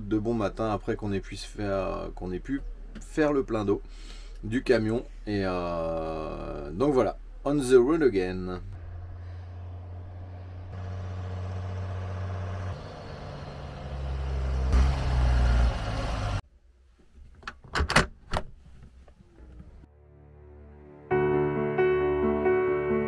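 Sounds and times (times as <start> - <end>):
diesel truck engine running: 8.7 - 16.4.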